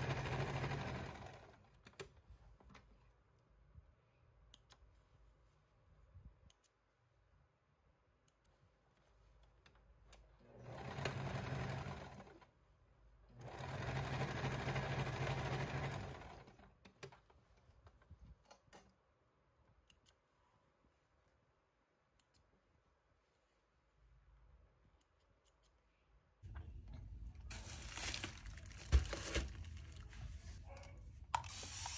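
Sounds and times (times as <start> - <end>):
sewing machine stitching: 0.0 - 1.8, 10.5 - 12.5, 13.3 - 16.8
thread snips clicking: 19.8 - 20.2, 25.0 - 26.0.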